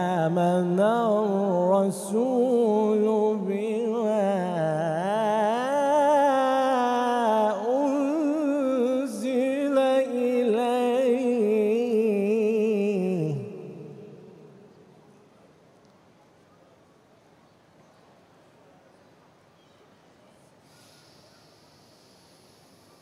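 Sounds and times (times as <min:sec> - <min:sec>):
man chanting melodic recitation: 0:00.0 - 0:14.4.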